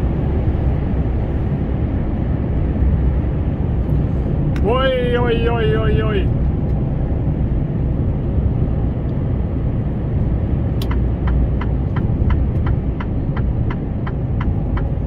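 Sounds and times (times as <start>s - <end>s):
engine and road rumble: 0.0s - 15.0s
turn signal ticking: 10.2s - 15.0s.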